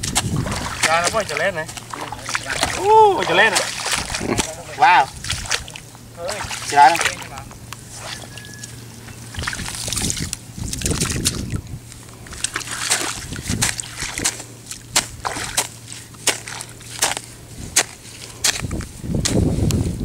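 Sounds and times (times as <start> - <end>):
hoe blade striking soil: 12.6 - 19.5.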